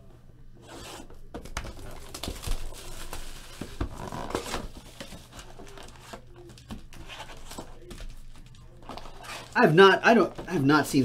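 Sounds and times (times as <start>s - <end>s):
plastic wrapper crinkling and tearing: 1.5s - 9.7s.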